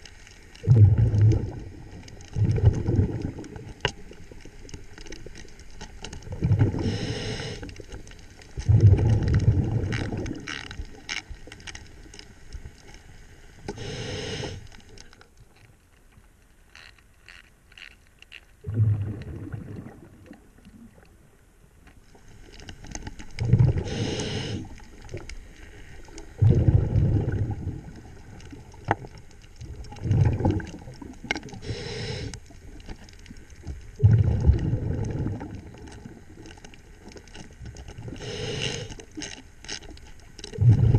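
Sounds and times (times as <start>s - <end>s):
exhaled bubbles rumbling: 0.6s - 11.5s, 18.6s - 21.2s, 22.9s - 25.5s, 26.1s - 38.9s, 39.9s - 40.9s
regulator inhale hiss: 6.7s - 7.9s, 13.7s - 14.9s, 23.8s - 24.8s, 31.5s - 32.5s, 38.1s - 39.1s
faint clicks: 14.5s - 18.6s, 24.2s - 26.4s.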